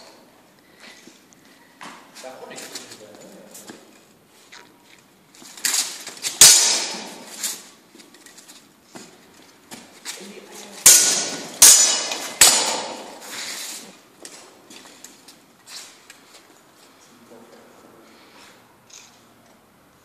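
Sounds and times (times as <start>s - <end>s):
swords clanging on armour: 5.7s - 7.4s, 10.8s - 13.2s.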